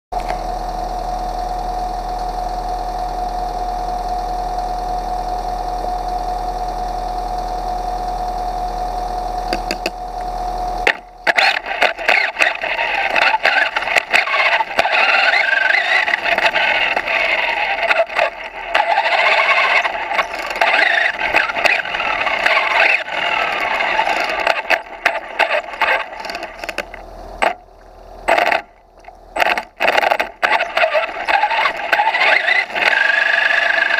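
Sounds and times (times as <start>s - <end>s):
steady hum with high tone: 0.2s - 33.9s
rc car driving rattle: 10.8s - 33.9s.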